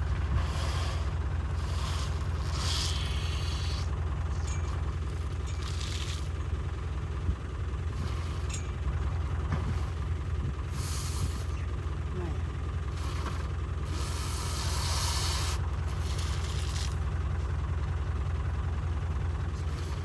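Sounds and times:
vehicle engine idling: 0.0 - 20.0
water splashing onto mud: 5.6 - 6.4, 16.0 - 17.0.

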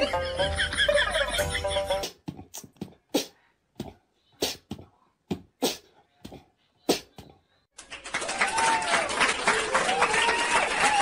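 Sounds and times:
music: 0.0 - 2.1.

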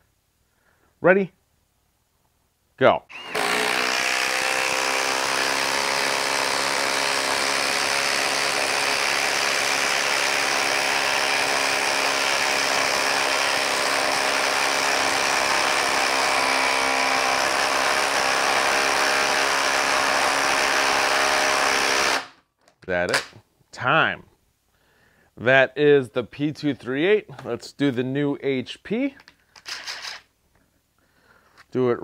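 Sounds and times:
impact driver hammering: 3.1 - 22.4.

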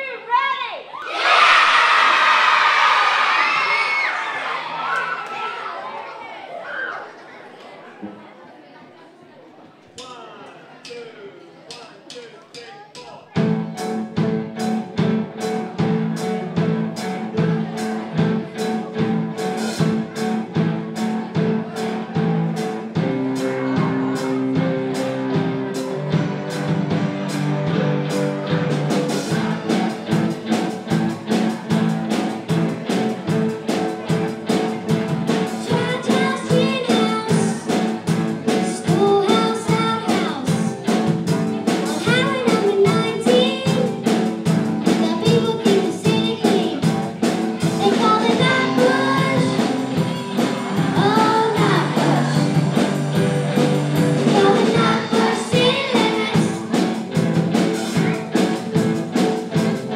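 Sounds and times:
drum kit beat: 11.7 - 59.9
electric guitar: 13.4 - 59.9
people singing into microphones: 54.2 - 56.5.

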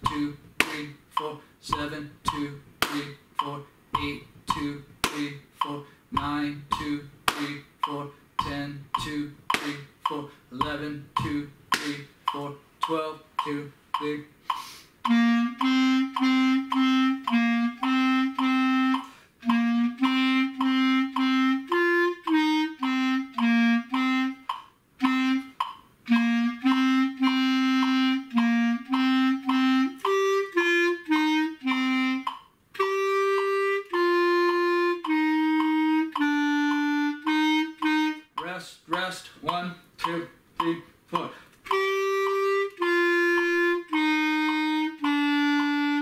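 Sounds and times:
solo clarinet melody: 15.0 - 38.4, 41.6 - 46.0.

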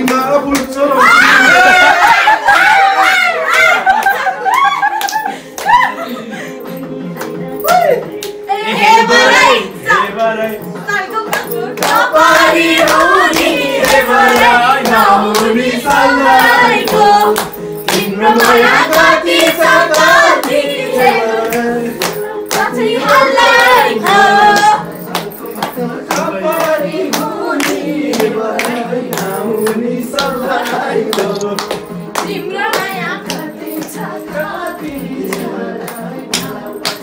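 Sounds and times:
hand claps: 0.0 - 1.0, 3.8 - 6.0, 7.1 - 8.4, 11.2 - 37.0
group singing: 8.3 - 37.0.

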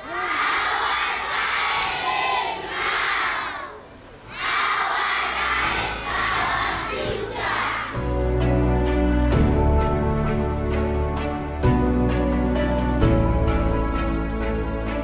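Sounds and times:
girls shouting and cheering: 0.0 - 8.0
music: 5.2 - 15.0.

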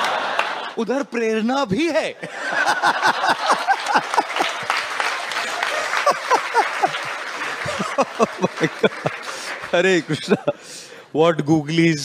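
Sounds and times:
audience clapping: 0.0 - 0.8, 2.6 - 10.6
audience laughing: 0.0 - 0.8, 2.2 - 10.6.

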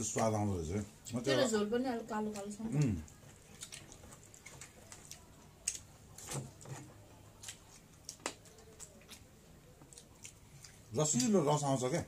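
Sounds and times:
hands mixing food on metal plates: 0.0 - 12.0
chewing smacks: 2.3 - 11.6.

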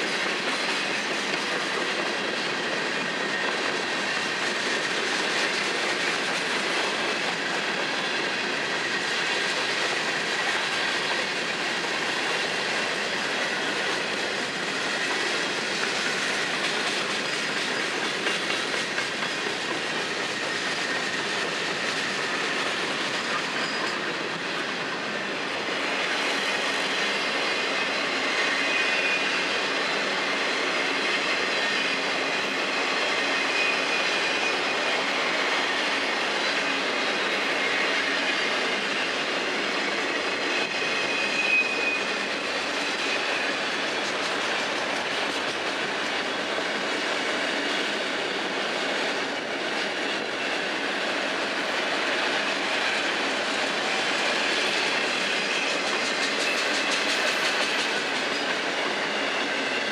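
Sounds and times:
steel wheels rolling on rail: 0.0 - 59.9
high wheel squeal: 12.9 - 24.4, 25.1 - 48.5.

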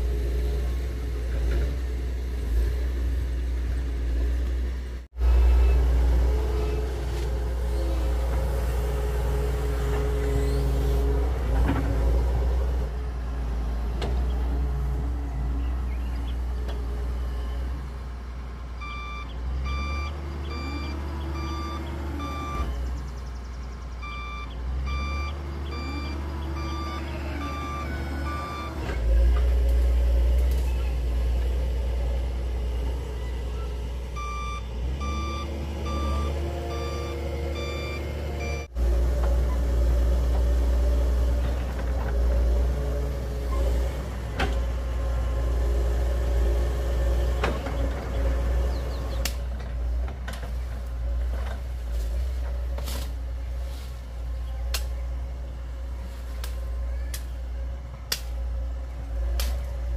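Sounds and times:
excavator diesel engine running: 0.0 - 59.9
travel alarm beeping: 18.8 - 22.7, 24.0 - 28.8, 34.2 - 38.7.

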